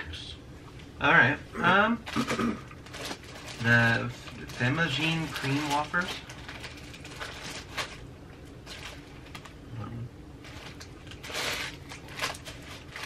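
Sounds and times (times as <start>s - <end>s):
plastic wrappers rustling: 2.0s - 9.6s, 10.4s - 13.0s.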